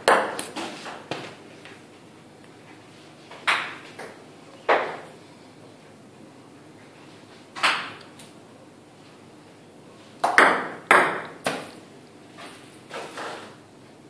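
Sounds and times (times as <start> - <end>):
ping-pong balls bouncing: 0.0 - 0.5, 3.3 - 5.1, 10.2 - 11.7.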